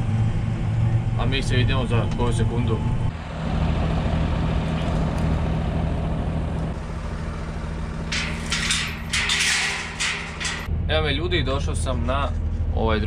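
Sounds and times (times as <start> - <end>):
tractor diesel engine idling: 0.0 - 10.7
metal gate clattering: 8.0 - 10.7.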